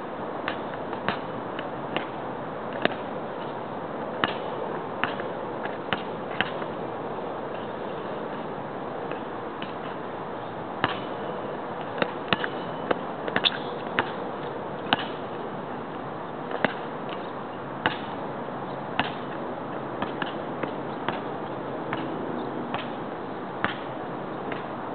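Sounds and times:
basketball bouncing on asphalt: 0:00.5 - 0:01.3, 0:01.9 - 0:03.1, 0:04.2 - 0:06.8, 0:10.8 - 0:18.2, 0:19.0 - 0:23.0, 0:23.6 - 0:24.7.

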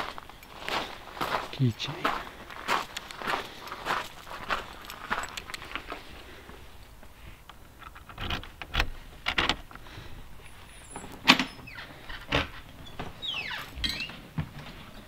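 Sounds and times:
door squeak: 0:10.7 - 0:14.9.

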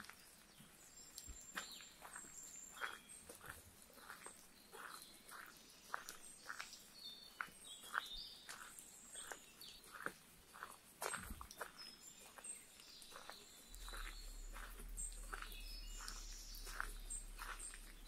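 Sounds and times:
footsteps on wet dirt: 0:00.0 - 0:18.0
small birds chirping: 0:00.0 - 0:18.0.

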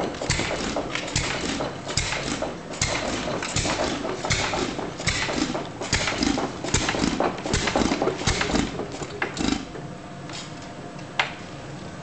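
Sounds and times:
single-cylinder engine beating: 0:00.0 - 0:09.7.

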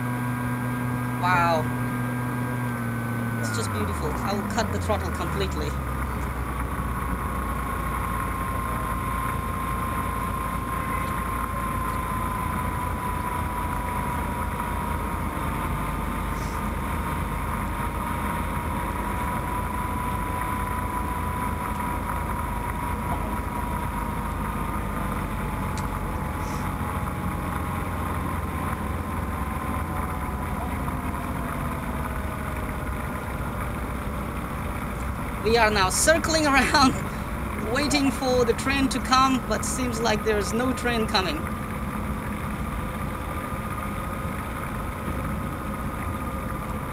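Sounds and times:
thin steady whine: 0:00.0 - 0:46.9.

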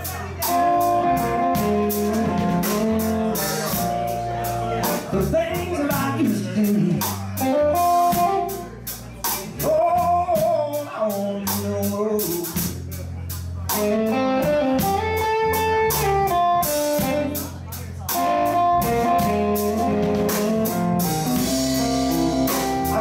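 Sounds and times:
man singing: 0:00.0 - 0:13.2, 0:21.8 - 0:23.0
live blues band playing: 0:00.0 - 0:23.0
electric guitar fill: 0:00.4 - 0:05.4, 0:18.2 - 0:23.0.

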